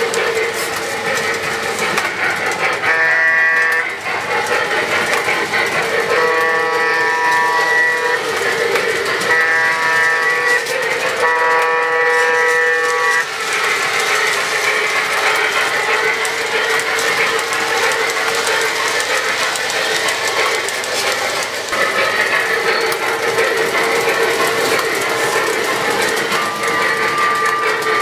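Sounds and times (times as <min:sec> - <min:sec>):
model train running on track: 0:00.0 - 0:28.0
locomotive horn chord: 0:02.8 - 0:04.0, 0:06.1 - 0:08.2, 0:09.2 - 0:13.3.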